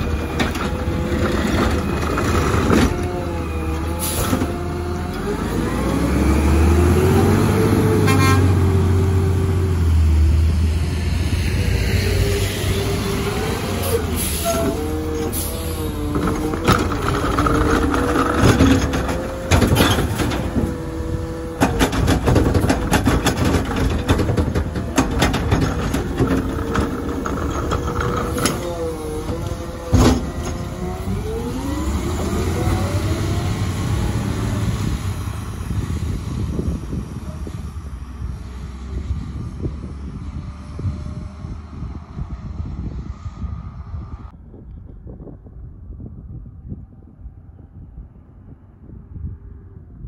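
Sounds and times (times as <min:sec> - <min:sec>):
hydraulic arm whining: 0:00.0 - 0:09.8, 0:11.6 - 0:36.6
garbage truck engine revving: 0:00.0 - 0:39.0
metal cart clanks and bangs: 0:16.2 - 0:20.8, 0:21.6 - 0:28.7.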